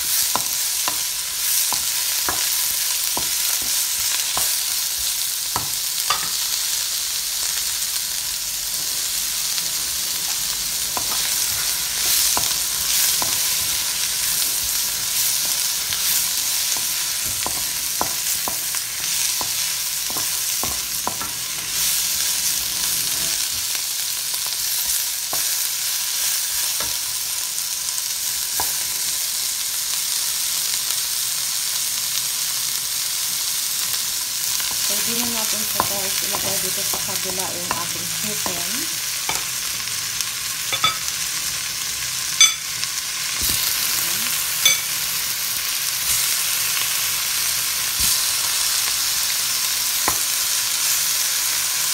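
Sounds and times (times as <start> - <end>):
onions sizzling in oil: 0.0 - 51.9.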